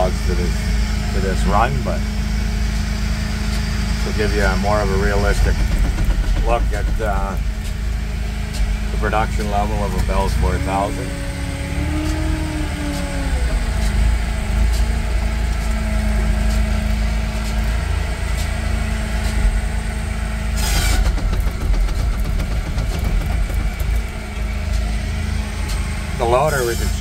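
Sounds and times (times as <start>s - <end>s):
diesel engine running: 0.0s - 27.0s
knocks: 5.3s - 7.8s, 20.6s - 24.8s.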